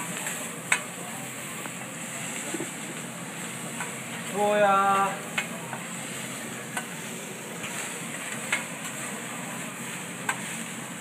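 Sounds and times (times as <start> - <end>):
rice sizzling on a griddle: 0.0 - 11.0.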